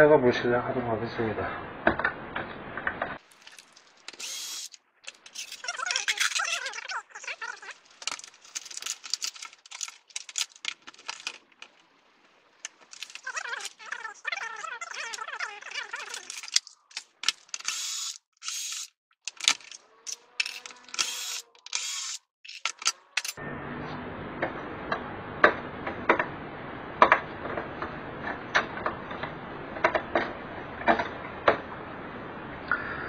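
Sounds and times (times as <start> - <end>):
cordless drill whirring: 4.1 - 4.8, 17.6 - 18.9, 20.4 - 22.2.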